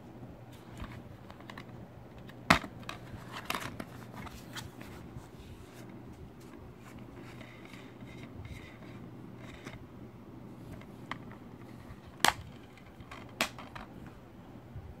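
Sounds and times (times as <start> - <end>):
plastic case clicking shut: 12.2 - 13.9.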